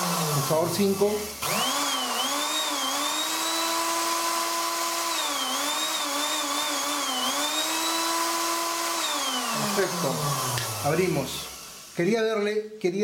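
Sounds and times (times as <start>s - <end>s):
blender motor hum with whine: 0.0s - 12.3s.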